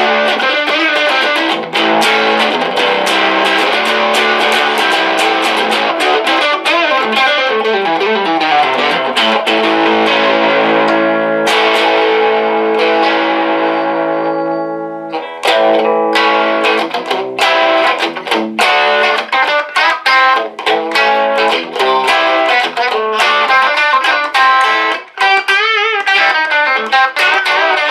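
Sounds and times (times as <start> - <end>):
electric guitar through amplifier: 0.0 - 27.9.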